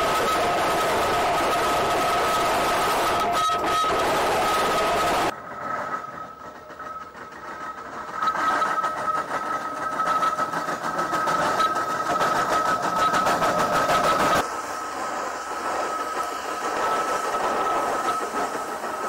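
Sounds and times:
steam traction engine beating: 0.0 - 19.0.

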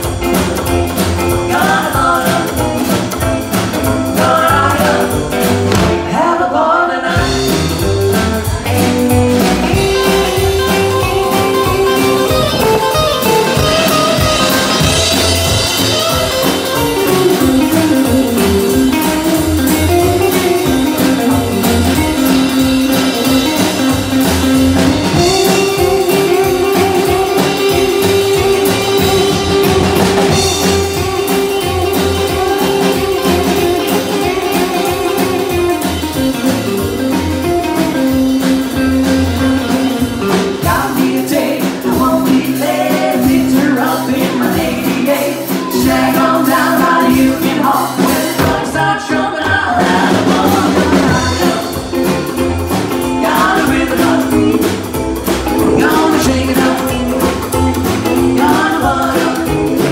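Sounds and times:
rhythm guitar: 0.0 - 6.4, 7.1 - 59.9
drums: 0.0 - 59.9
person singing: 1.2 - 3.0, 3.8 - 7.8, 40.3 - 59.9
electric guitar solo: 8.2 - 40.3.

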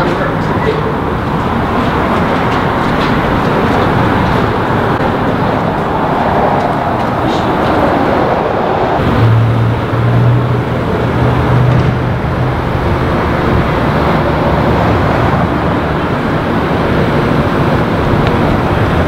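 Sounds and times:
car engine hum: 0.0 - 19.0
road noise: 0.0 - 19.0.

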